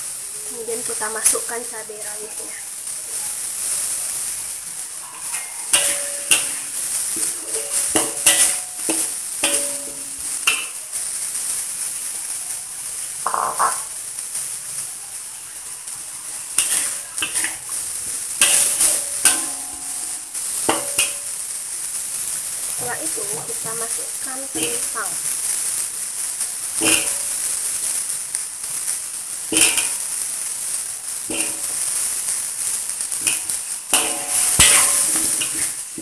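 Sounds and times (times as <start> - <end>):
spice paste sizzling in hot oil: 0.0 - 36.0
metal spoon clanking against wok: 5.2 - 10.8, 13.2 - 13.9, 16.6 - 17.7, 18.4 - 21.2, 26.8 - 27.3, 29.6 - 30.0, 31.3 - 31.8, 33.2 - 35.8.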